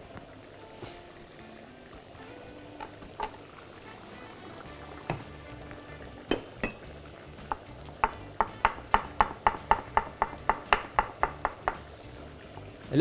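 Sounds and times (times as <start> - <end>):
kitchen utensil knocking: 6.3 - 11.9.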